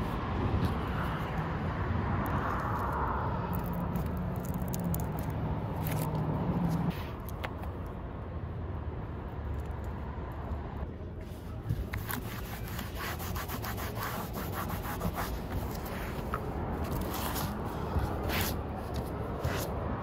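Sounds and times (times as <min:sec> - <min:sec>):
tape scraping and clicking: 0:02.2 - 0:07.9, 0:11.8 - 0:19.8.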